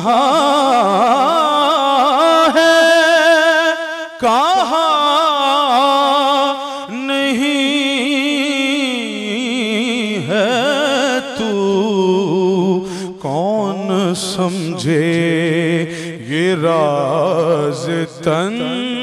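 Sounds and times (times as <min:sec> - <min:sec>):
man singing: 0:00.0 - 0:19.0.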